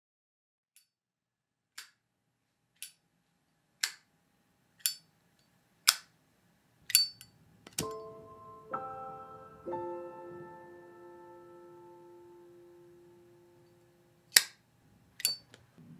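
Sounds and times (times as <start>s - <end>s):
soft piano music: 7.8s - 14.4s.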